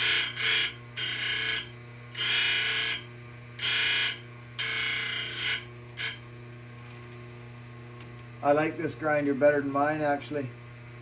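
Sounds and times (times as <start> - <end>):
grinding stone on saw chain: 0.0 - 6.2
steady machine hum: 0.0 - 11.0.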